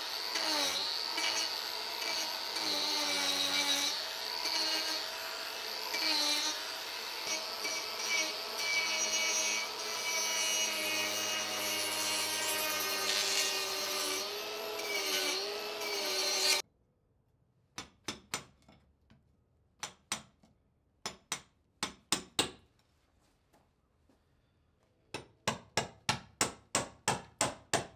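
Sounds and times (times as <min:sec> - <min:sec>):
angle grinder cutting wood: 0:00.0 - 0:16.6.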